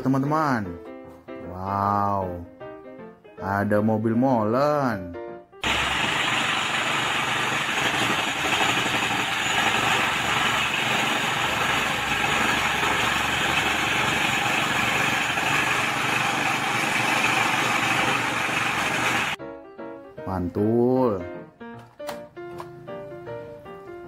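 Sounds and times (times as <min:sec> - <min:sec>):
concrete pouring down chute: 0:05.6 - 0:19.4
diesel truck engine running: 0:05.7 - 0:19.4.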